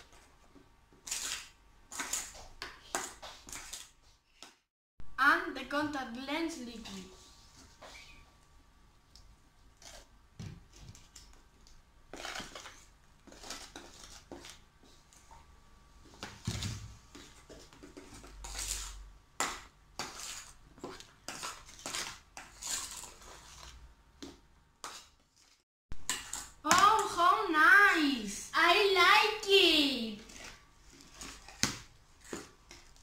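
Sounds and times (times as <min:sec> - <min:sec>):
spoons scraping a metal bowl: 0:17.9 - 0:19.0, 0:20.0 - 0:23.9.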